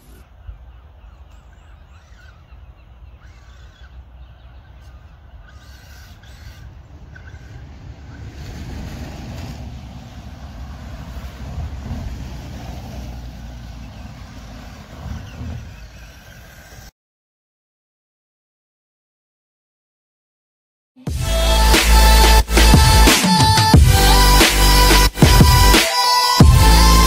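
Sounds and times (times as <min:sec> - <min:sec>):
wind rumble on microphone: 0:06.3 - 0:16.6.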